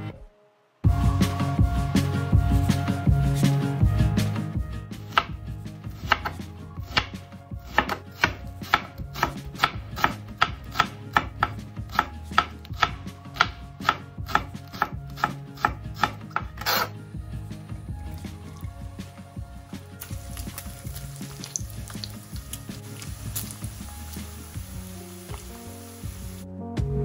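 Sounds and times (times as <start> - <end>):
knife chopping on cutting board: 6.0 - 16.9
knife scraping cutting board: 13.8 - 17.0.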